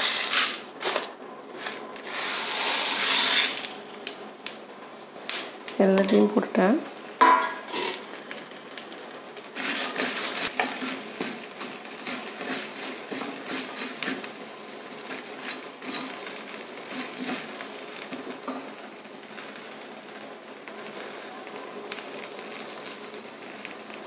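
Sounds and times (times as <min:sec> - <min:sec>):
metal ladle scraping a pan: 0:01.6 - 0:03.7, 0:07.4 - 0:08.0, 0:09.6 - 0:14.3.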